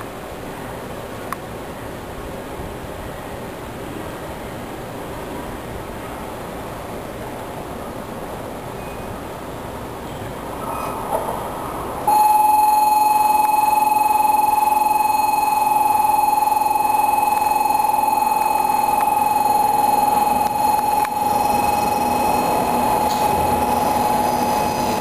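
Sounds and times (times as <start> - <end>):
faint train rumble: 0.0 - 25.0
train warning buzzer tone: 12.1 - 25.0.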